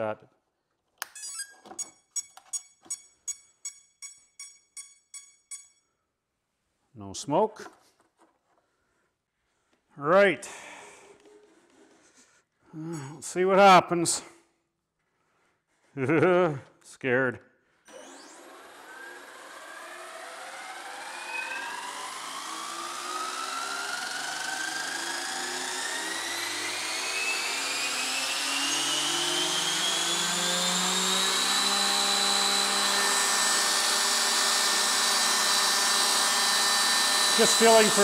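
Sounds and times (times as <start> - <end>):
model helicopter motor whine: 17.9 - 38.0.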